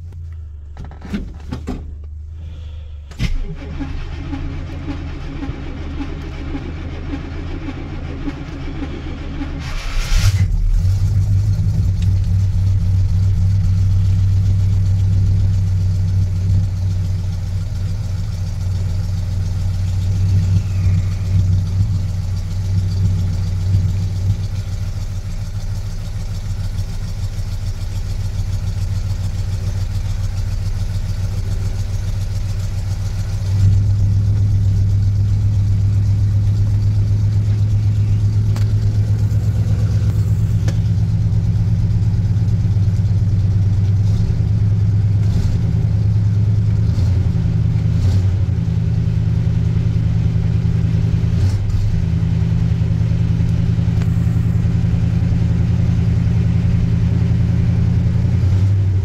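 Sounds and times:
pickup truck engine idling: 10.5s - 46.8s, 52.0s - 59.0s.

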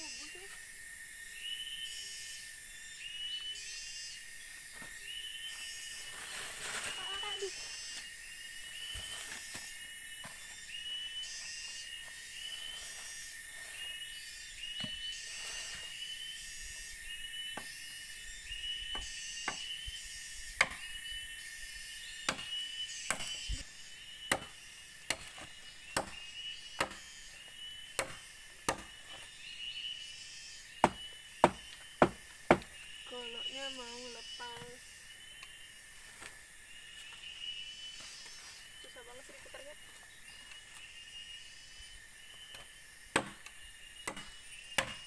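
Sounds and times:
machete chopping bamboo: 20.6s - 20.9s, 22.3s - 23.5s, 24.2s - 26.2s, 26.8s - 27.0s, 28.0s - 29.0s, 30.8s - 32.7s, 43.1s - 45.0s.

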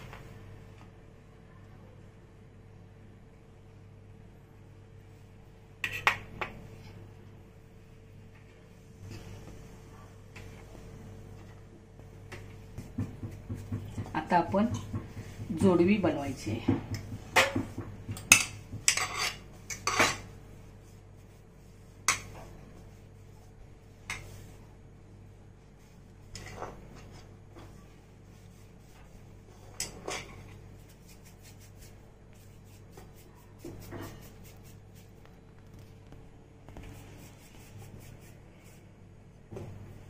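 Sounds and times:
faint steady hum: 0.0s - 40.0s.

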